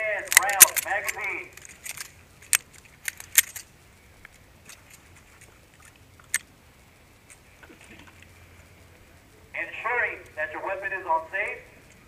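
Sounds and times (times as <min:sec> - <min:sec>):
pistol metallic clicks: 0:00.3 - 0:03.7.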